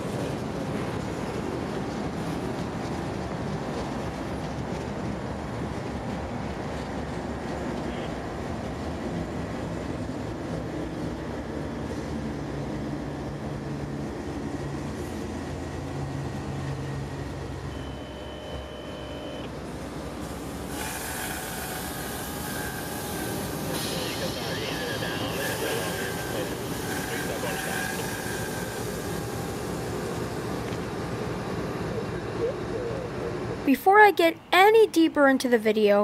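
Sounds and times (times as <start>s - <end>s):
freight train rolling on rails: 0.0s - 35.2s
diesel locomotive engine running: 0.0s - 35.6s
thin high whine: 17.7s - 19.5s.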